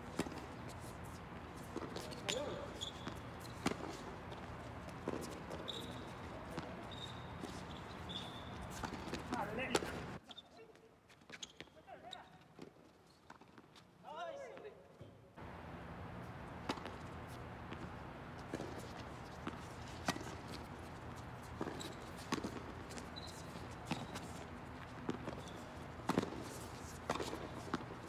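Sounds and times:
footsteps on court: 0:00.0 - 0:15.6, 0:16.2 - 0:28.0
rackets striking tennis ball: 0:01.6 - 0:10.2, 0:16.5 - 0:28.0
ball bouncing on court: 0:01.7 - 0:10.1, 0:16.6 - 0:20.6, 0:21.4 - 0:24.4, 0:25.0 - 0:26.5.

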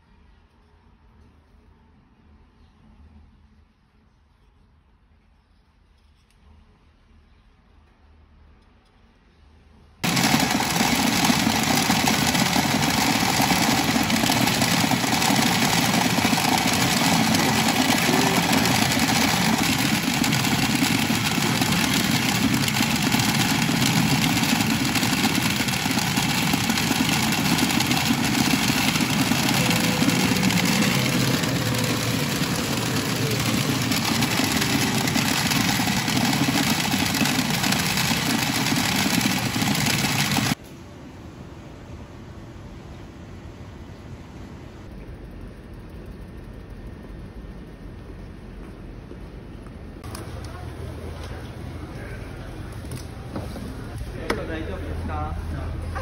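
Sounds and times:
clatter of steel balls: 0:10.0 - 0:40.6
electronic machine sound effects: 0:10.0 - 0:40.6.

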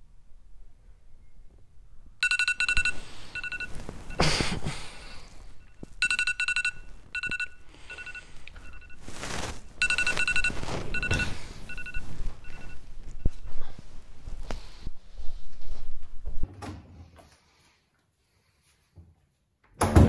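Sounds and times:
electronic alarm beeping: 0:02.2 - 0:04.2, 0:05.5 - 0:13.6
bedding rustling: 0:02.4 - 0:16.5.

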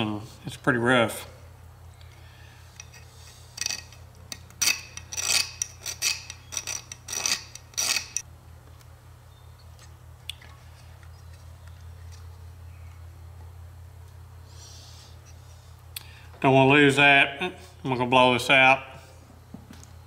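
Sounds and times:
steady low hum: 0:00.0 - 0:20.0
metal tool scraping metal: 0:02.7 - 0:08.2.

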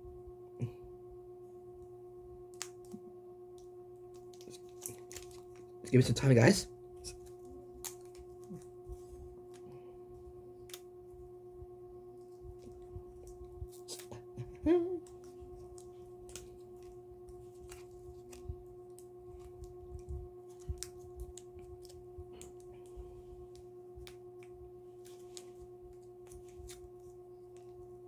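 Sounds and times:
steady hum: 0:00.0 - 0:28.0
wrapper crinkling: 0:04.2 - 0:05.8.

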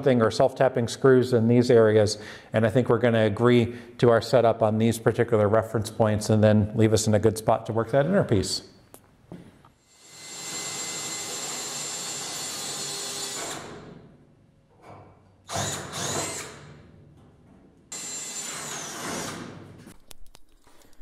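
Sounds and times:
power drill boring through steel: 0:09.9 - 0:13.8, 0:15.5 - 0:16.6, 0:17.9 - 0:19.5.

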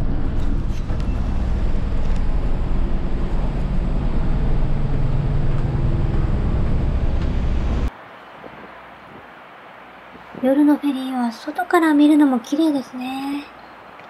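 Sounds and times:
ship engines humming: 0:00.0 - 0:07.9
wind rumble on microphone: 0:00.0 - 0:09.3.

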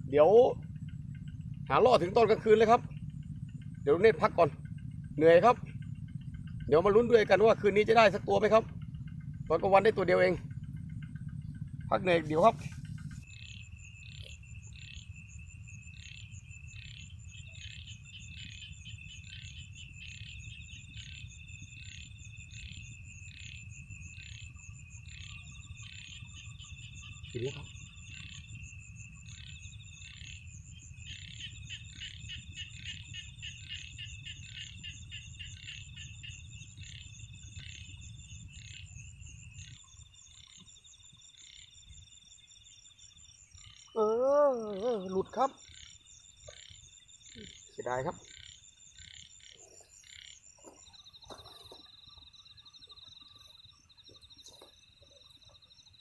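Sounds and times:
low rumble: 0:00.0 - 0:40.4
high insect trill: 0:00.0 - 0:56.0.

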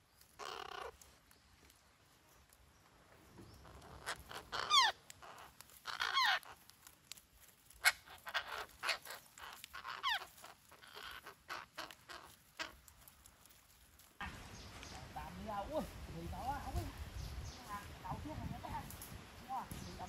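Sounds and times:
parakeets squawking: 0:00.4 - 0:01.0, 0:03.6 - 0:06.7, 0:07.8 - 0:12.9.

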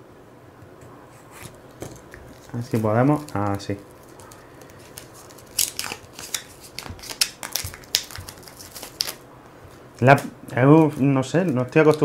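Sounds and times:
plastic shrink-wrap crinkling and tearing: 0:02.0 - 0:09.2.

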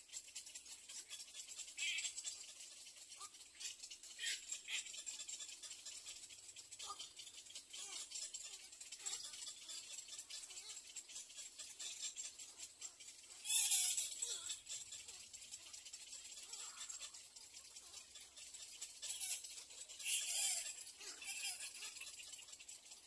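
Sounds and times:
bird chicks rattling begging chatter: 0:00.0 - 0:23.0.

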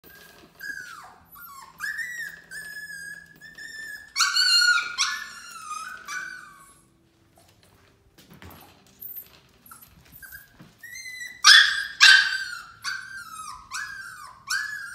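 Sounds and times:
puppy whining: 0:00.0 - 0:07.6, 0:08.8 - 0:14.9.

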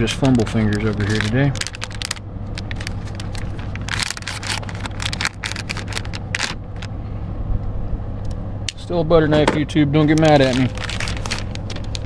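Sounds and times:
low vehicle rumble: 0:00.0 - 0:12.0
small plastic parts clicking and rattling: 0:00.2 - 0:06.9.

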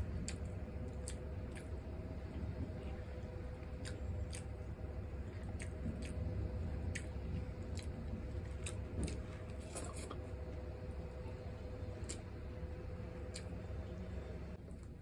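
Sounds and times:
steady low hum: 0:00.0 - 0:15.0
wet chewing smacks: 0:00.2 - 0:01.8, 0:03.5 - 0:10.2.

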